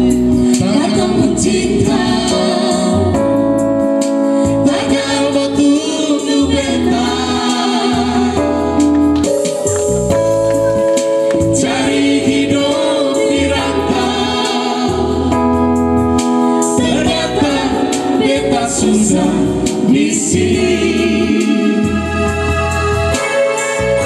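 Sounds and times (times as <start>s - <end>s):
woman and men singing amplified: 0.0s - 3.2s, 4.5s - 8.7s, 11.3s - 15.4s, 16.7s - 22.3s
bass line: 0.0s - 23.2s
electronic keyboard accompaniment: 0.0s - 24.0s.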